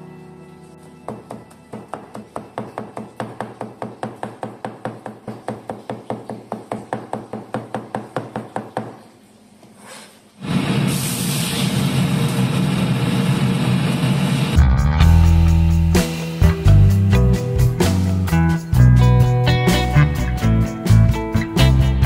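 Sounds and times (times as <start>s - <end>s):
cleaver chopping on cutting board: 1.1s - 9.0s.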